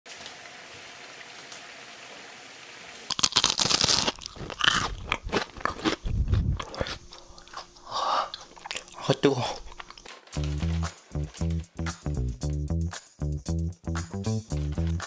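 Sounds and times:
fried food crunching loudly: 3.1s - 11.3s.

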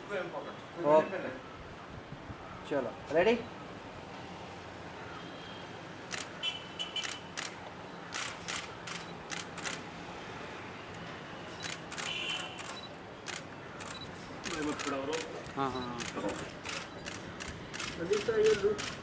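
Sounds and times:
camera shutters clicking: 6.1s - 6.3s, 7.0s - 9.9s, 11.6s - 19.0s.

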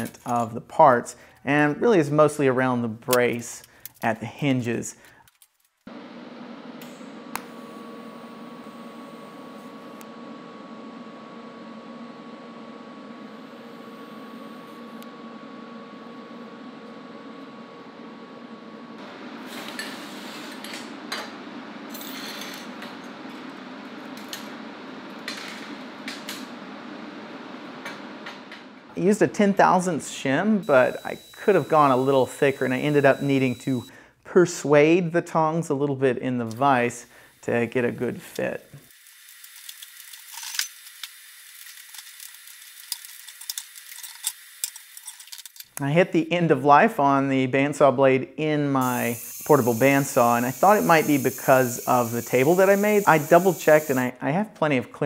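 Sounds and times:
steady hum: 5.9s - 34.0s, 48.8s - 54.1s
faint hiss: 48.8s - 54.1s.

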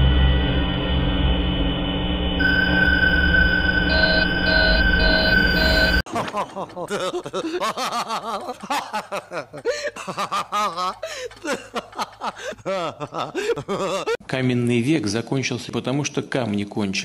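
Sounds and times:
man laughing heartily: 6.1s - 14.2s.

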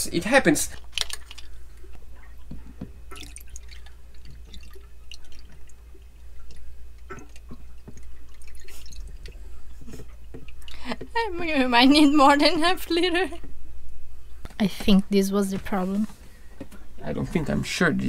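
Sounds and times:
coolant trickling and dripping: 0.2s - 12.3s.

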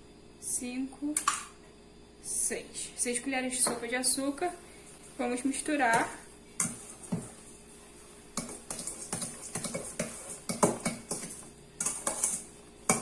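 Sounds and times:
spoon scraping and knocking metal bowl: 5.9s - 7.4s, 8.4s - 13.0s.

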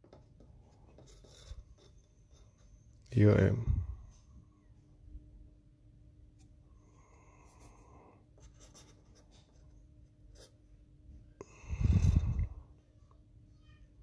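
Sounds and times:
fingernail scratching circuit board: 0.9s - 2.8s.

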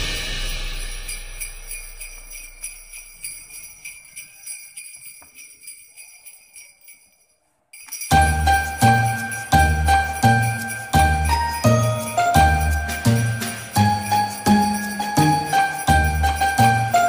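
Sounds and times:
heavy bass beat: 0.0s - 2.9s
jingle bells shaking: 0.0s - 17.0s.

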